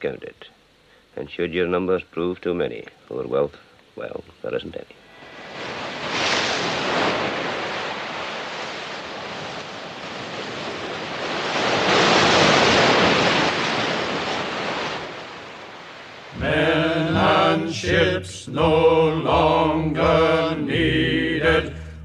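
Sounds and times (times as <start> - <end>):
waves washing in: 5.1 - 22.0.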